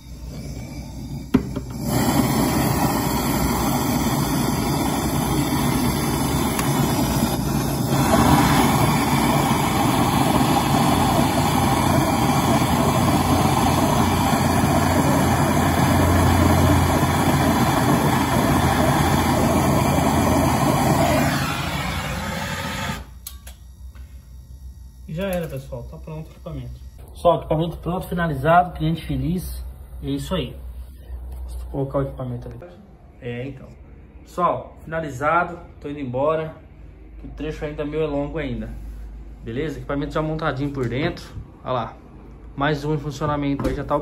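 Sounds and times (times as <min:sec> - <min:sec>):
gas torch flame rushing: 0:00.0 - 0:23.4.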